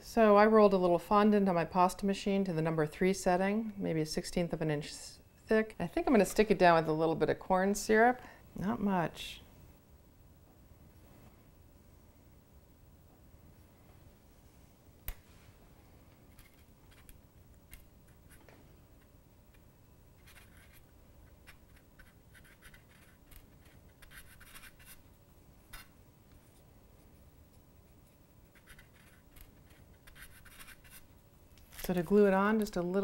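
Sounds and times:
fingertips rubbing fondant: 20.2 - 25.0, 27.9 - 31.1.

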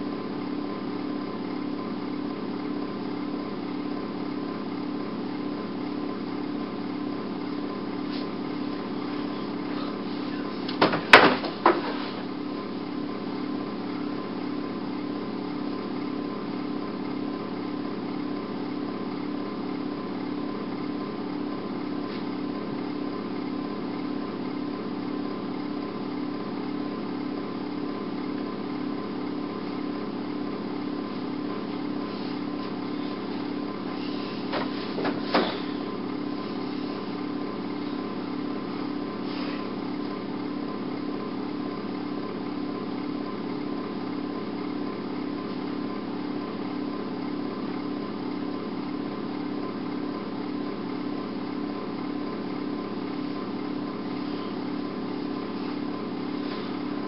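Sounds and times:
small motor humming: 29.6 - 48.6, 51.9 - 57.0.

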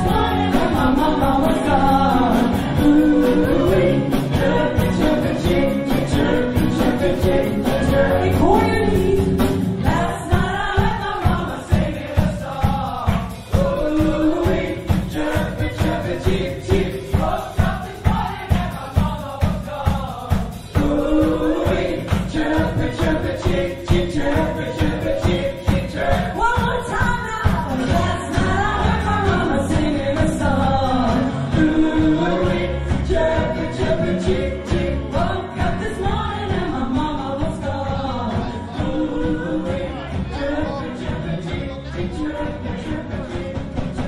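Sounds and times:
live pop band playing: 0.0 - 44.0
voices singing together: 0.0 - 44.0
audience clapping along: 10.8 - 13.6, 21.8 - 26.2.

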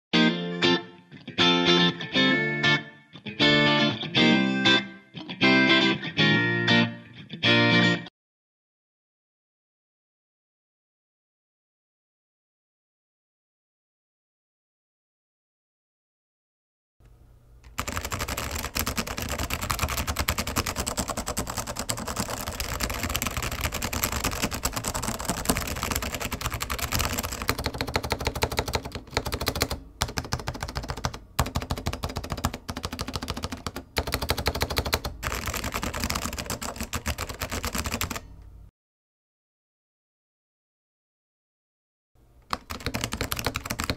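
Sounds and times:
mechanical keyboard typing: 17.7 - 38.3, 42.5 - 43.9.

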